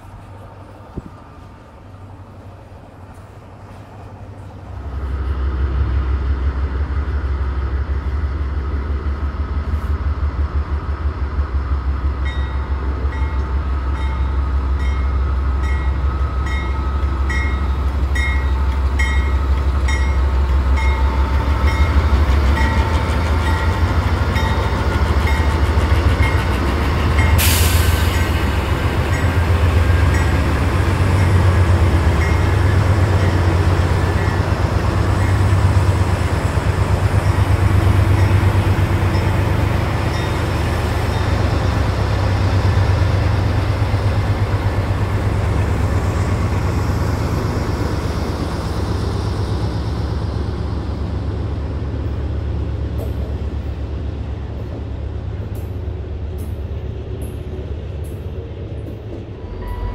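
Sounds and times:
diesel locomotive engines rumbling: 0.0 - 59.9
loud air hiss: 27.3 - 28.6.

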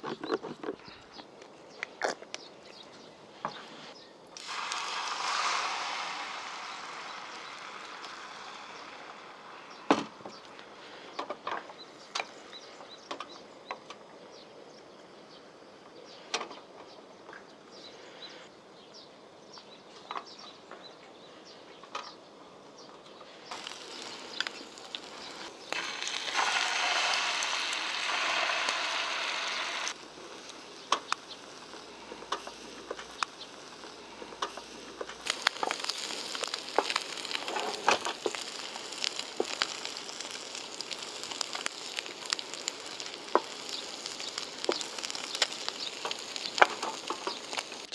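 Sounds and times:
egg sizzling in hot oil: 4.4 - 11.0, 23.5 - 47.9.

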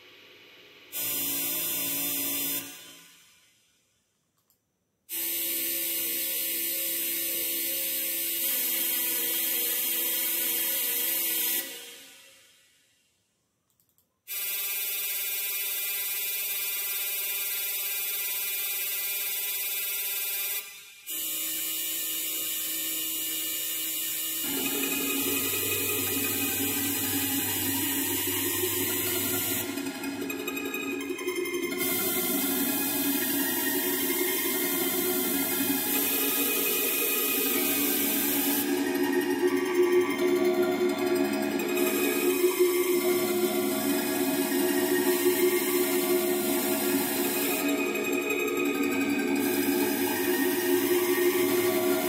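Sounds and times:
electronic drone with hiss: 24.4 - 52.0.

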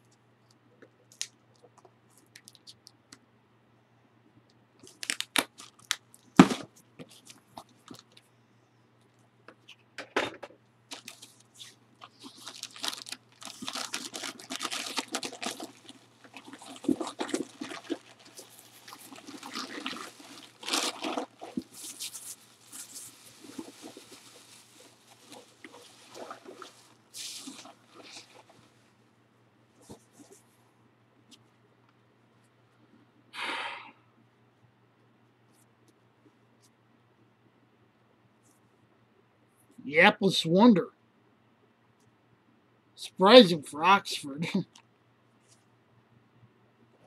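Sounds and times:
paper cracking: 4.9 - 6.0, 10.9 - 28.6
paper crinkling and tearing: 4.9 - 6.0, 10.9 - 28.7.

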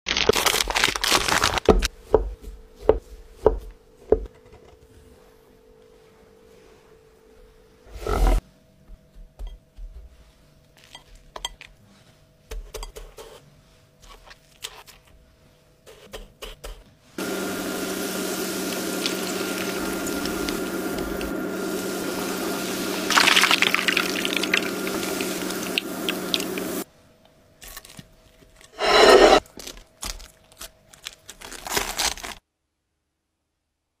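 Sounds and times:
hot oil sizzling and crackling: 17.2 - 26.8.

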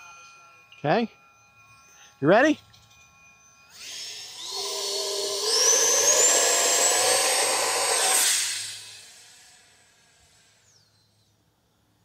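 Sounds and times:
electric ducted fan whine: 3.8 - 10.0.

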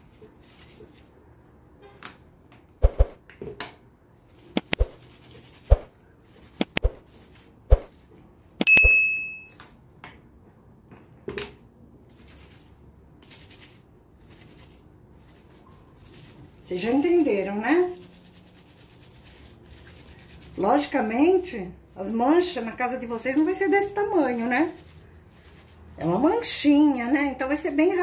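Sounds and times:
sharp clicks and knocks: 4.6 - 5.0
bright bell ding: 8.6 - 9.6.

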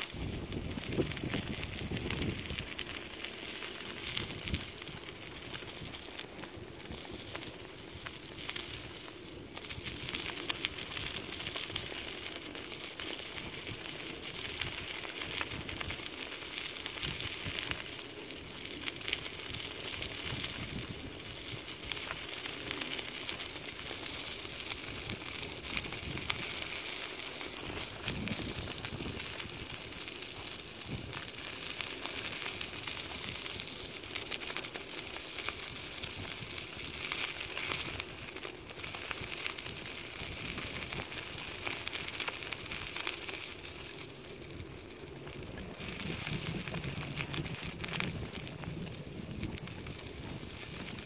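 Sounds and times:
wheels rolling over gravel: 0.0 - 51.0.

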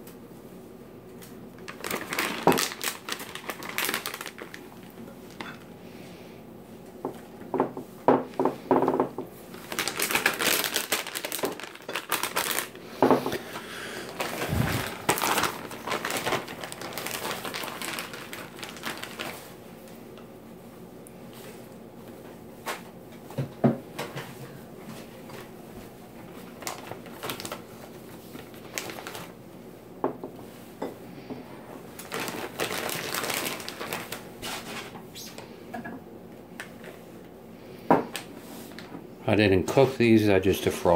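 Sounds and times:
plastic packaging crinkling: 1.6 - 5.7, 9.5 - 19.6, 26.2 - 29.4, 31.9 - 35.0.

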